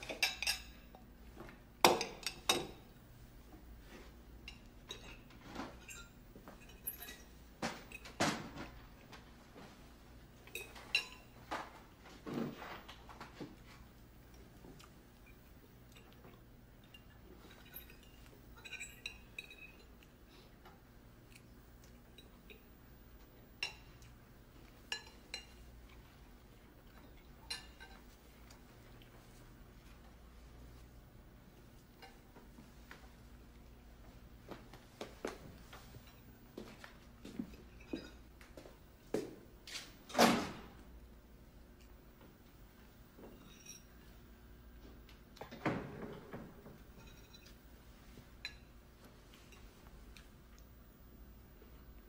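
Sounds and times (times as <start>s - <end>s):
cutlery clinking on plates: 0.0s - 1.0s, 10.5s - 11.8s, 15.2s - 20.1s, 26.9s - 28.1s, 46.9s - 47.6s.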